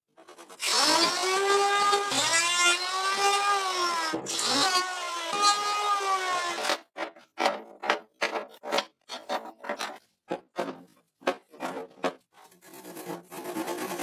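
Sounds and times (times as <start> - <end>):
wooden knocks and clunks: 7.0 - 12.2.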